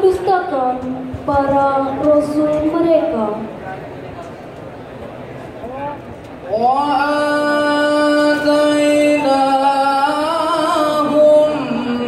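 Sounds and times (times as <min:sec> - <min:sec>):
man reciting melodically into microphone: 0:06.5 - 0:12.0.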